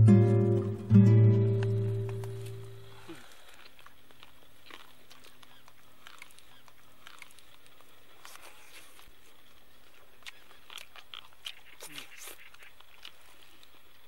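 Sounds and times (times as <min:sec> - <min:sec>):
meat being torn and chewed: 0:03.2 - 0:14.0.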